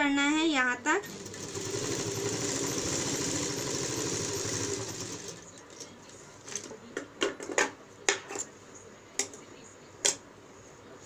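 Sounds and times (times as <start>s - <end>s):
sewing machine stitching: 1.0s - 5.8s.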